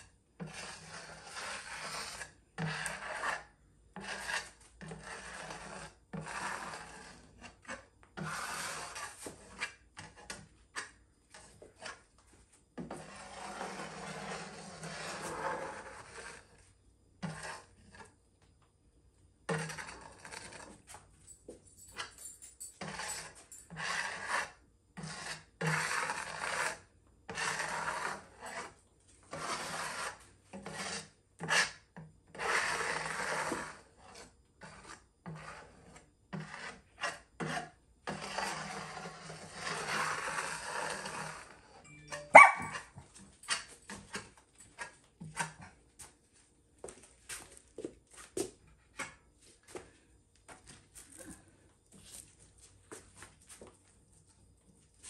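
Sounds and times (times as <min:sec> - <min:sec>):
rough scraping and rubbing: 0:00.4 - 0:12.2, 0:12.8 - 0:18.1, 0:19.5 - 0:20.9, 0:22.8 - 0:41.7.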